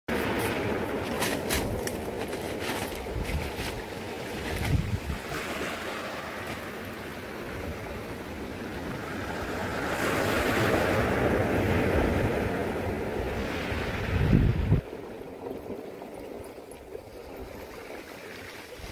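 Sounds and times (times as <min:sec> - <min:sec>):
waves washing over pebble beach: 0:00.1 - 0:18.9
wind buffeting microphone: 0:00.1 - 0:18.9.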